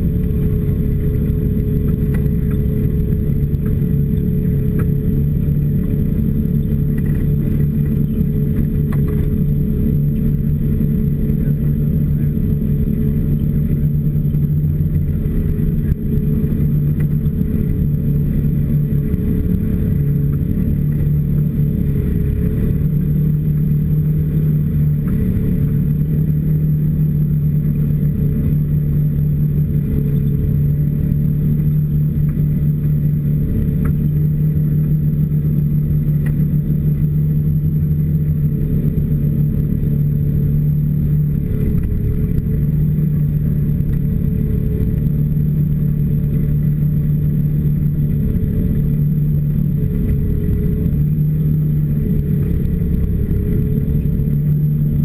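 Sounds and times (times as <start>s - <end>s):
snowmobile engine running: 0.0s - 55.0s.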